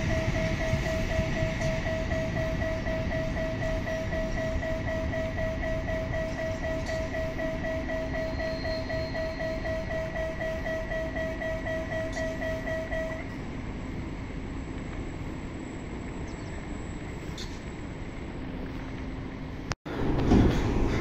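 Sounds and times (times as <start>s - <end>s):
crossing signal beeping: 0.0s - 13.4s
train rumbling: 0.0s - 21.0s.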